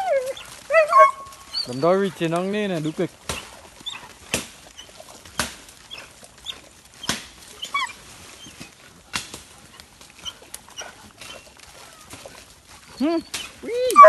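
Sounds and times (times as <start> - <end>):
dog whining: 0.0 - 2.0, 7.6 - 8.6, 13.0 - 14.0
dogs digging and scrabbling: 0.0 - 14.0.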